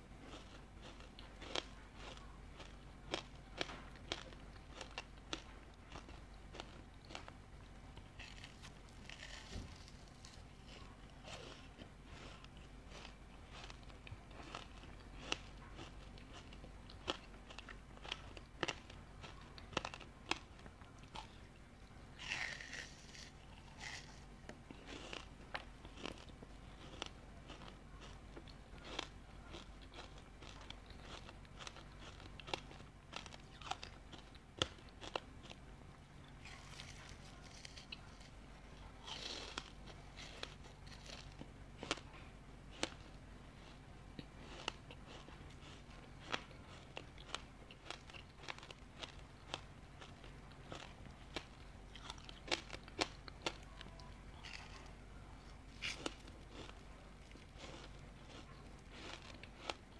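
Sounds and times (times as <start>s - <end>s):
ice crunching between teeth: 22.2s - 35.6s, 55.7s - 59.9s.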